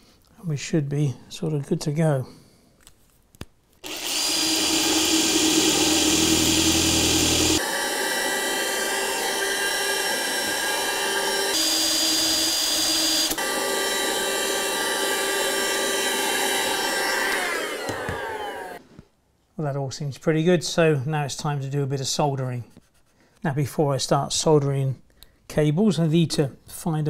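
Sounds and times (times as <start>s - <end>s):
cordless drill boring wood: 3.8s - 18.8s
handheld vacuum cleaner whine: 3.8s - 18.8s.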